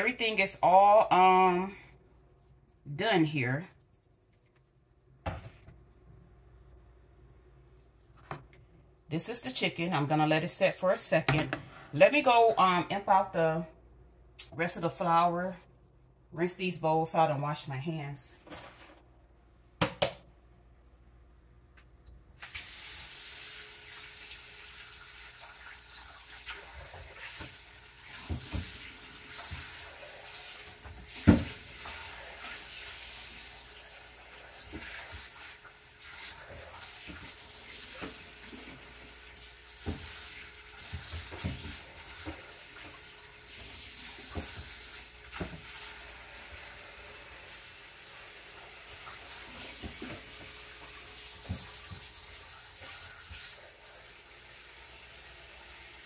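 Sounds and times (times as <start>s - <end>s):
tap running into sink: 40.8s - 45.7s.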